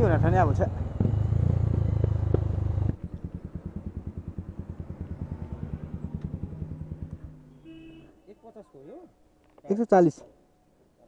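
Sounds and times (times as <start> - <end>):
motorcycle engine idling: 0.0 - 8.0.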